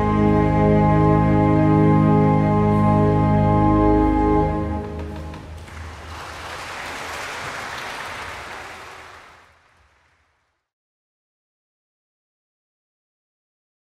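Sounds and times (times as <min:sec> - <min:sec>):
cello and organ chord: 0:00.0 - 0:05.3
audience applause: 0:04.8 - 0:10.6.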